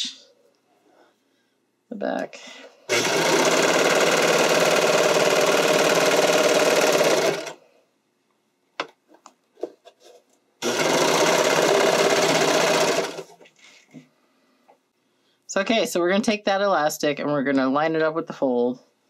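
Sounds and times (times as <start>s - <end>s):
sewing machine stitching: 2.9s - 7.6s, 10.6s - 13.4s.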